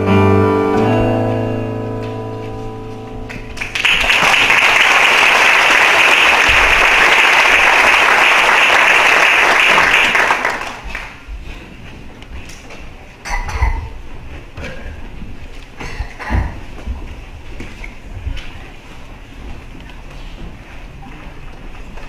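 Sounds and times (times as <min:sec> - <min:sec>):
congregation applauding: 0:03.3 - 0:11.3.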